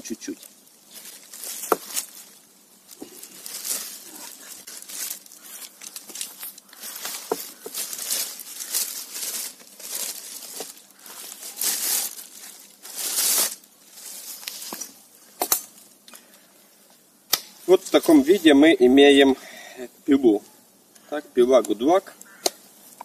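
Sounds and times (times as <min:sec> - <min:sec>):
packaging crinkling and rustling: 0:00.2 - 0:15.0.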